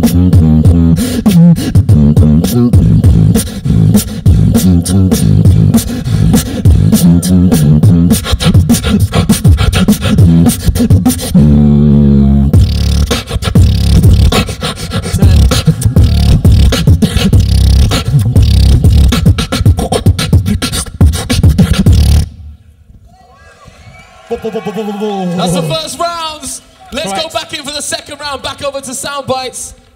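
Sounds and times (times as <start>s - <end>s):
beatboxing: 0.0s - 22.4s
held vocal bass note: 13.6s - 19.1s.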